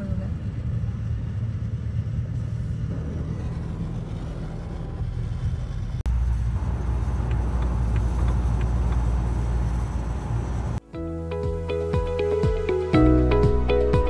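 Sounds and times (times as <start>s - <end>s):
car road and engine rumble: 0.0s - 10.9s.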